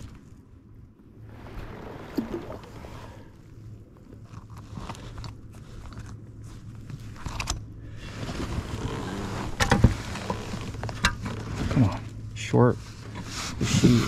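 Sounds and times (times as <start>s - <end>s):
gear and clothing handling noises: 3.5s - 14.0s.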